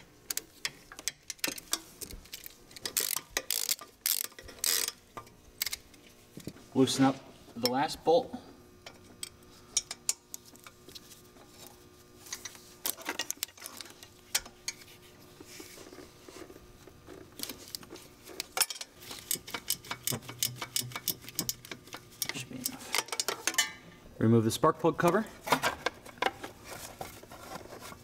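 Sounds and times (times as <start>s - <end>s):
ratcheting wrench clicking: 0.3s - 5.0s, 18.6s - 23.2s.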